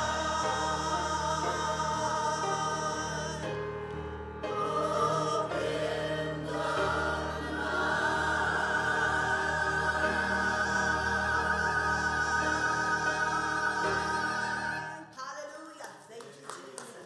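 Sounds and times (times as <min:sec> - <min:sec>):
choir singing: 0:00.0 - 0:15.1
steady accompaniment: 0:00.0 - 0:15.2.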